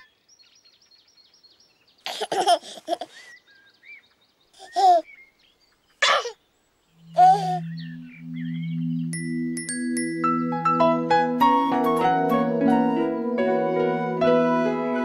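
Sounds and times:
small birds twittering: 0.0 - 10.5
baby giggling: 2.0 - 3.3, 4.6 - 5.0, 7.2 - 7.6.

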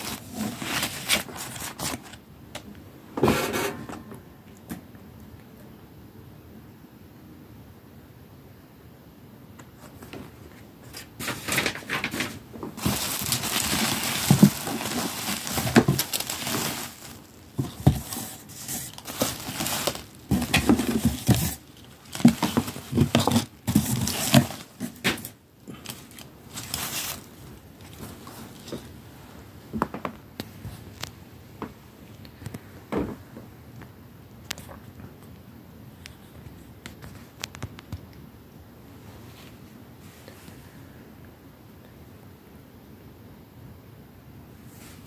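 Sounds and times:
plastic packaging crinkling: 0.0 - 2.2, 10.9 - 28.9.

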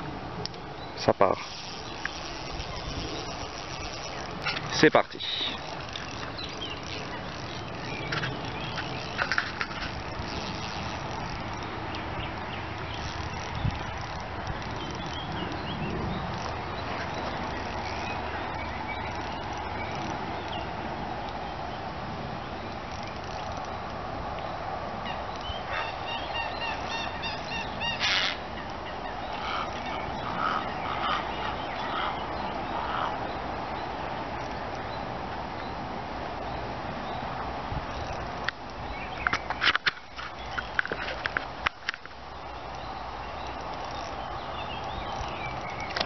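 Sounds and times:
bird calls: 0.5 - 20.8, 25.0 - 35.8, 37.9 - 46.0
wind on microphone: 1.4 - 21.0
sharp clicks: 44.8 - 46.0.

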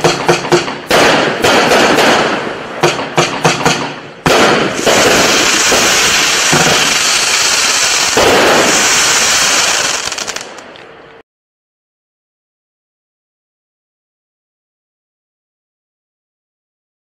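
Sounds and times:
heavy firework bursts: 4.2 - 10.7
firework crackling: 4.3 - 10.8.

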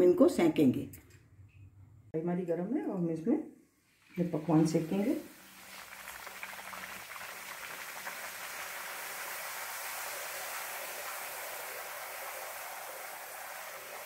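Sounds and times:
dough sizzling in hot fat: 4.1 - 14.0.

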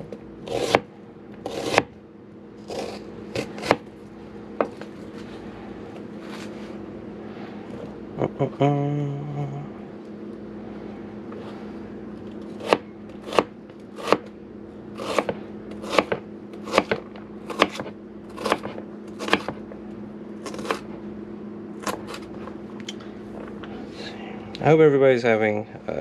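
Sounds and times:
knife chopping onion: 0.0 - 1.9, 2.6 - 3.9, 12.5 - 14.3, 14.9 - 19.6, 20.4 - 20.9, 21.8 - 22.4.

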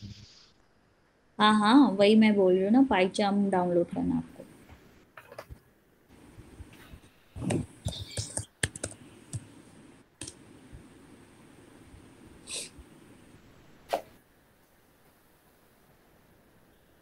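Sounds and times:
typing on a computer keyboard: 7.4 - 9.5.

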